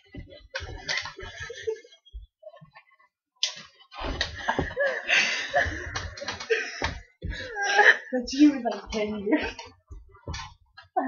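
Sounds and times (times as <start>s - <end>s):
people laughing: 0.3s - 2.6s, 4.4s - 8.1s.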